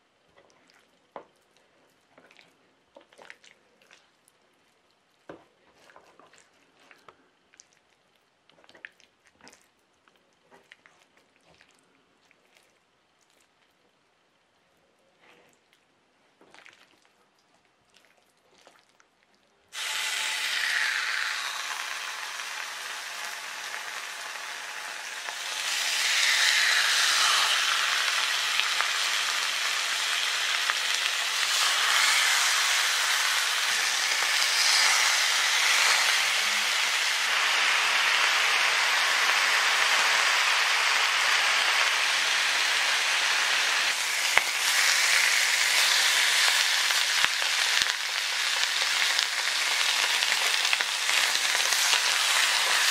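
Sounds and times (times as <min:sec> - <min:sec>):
ribs sizzling in frying pan: 0:19.8 - 0:52.9.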